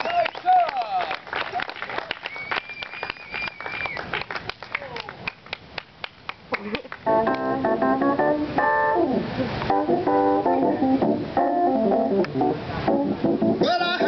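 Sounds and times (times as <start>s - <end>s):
applause claps: 0.0s - 7.4s
keyboard music with organ chords: 7.0s - 14.0s.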